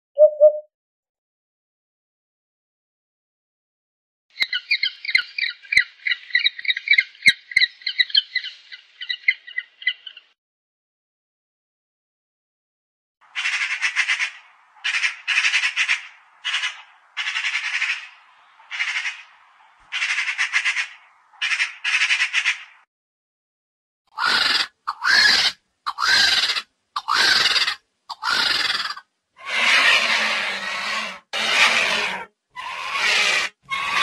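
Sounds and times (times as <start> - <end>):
harsh vulture calls: 13.2 - 22.8, 24.1 - 34.0
magpie chattering: 24.2 - 29.0.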